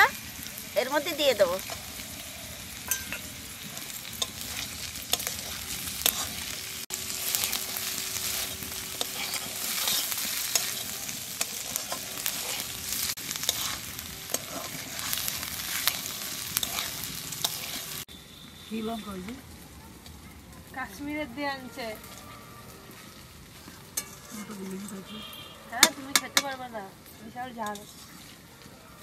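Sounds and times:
food sizzling in hot oil: 0.0s - 29.0s
metal spatula scraping pan: 3.8s - 6.6s, 7.2s - 18.0s, 23.6s - 26.6s, 27.2s - 28.4s.

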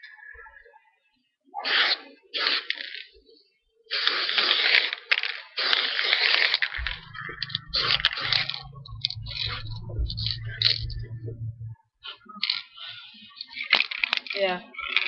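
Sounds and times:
spray paint can hissing: 3.9s - 5.0s
steady low hum: 6.8s - 13.4s.

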